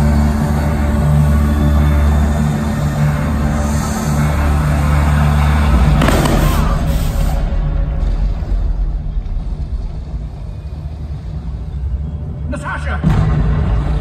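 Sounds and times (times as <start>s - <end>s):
music with deep drone: 0.0s - 14.0s
noisy boom effect: 6.0s - 10.2s.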